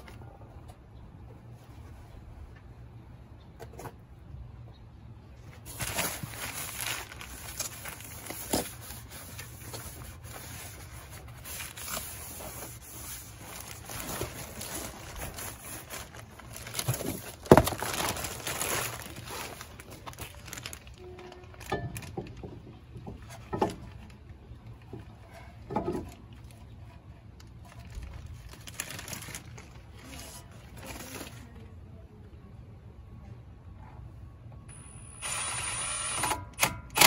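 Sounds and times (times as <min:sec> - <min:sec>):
paper and plastic rustling: 0:05.5 - 0:24.2, 0:24.8 - 0:31.7.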